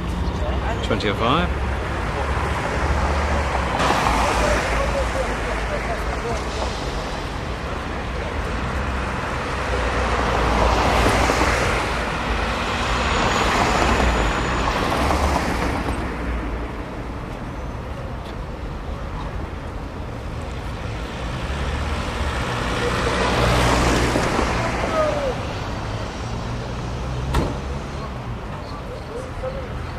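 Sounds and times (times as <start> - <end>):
cars passing close by: 0.0 - 29.9.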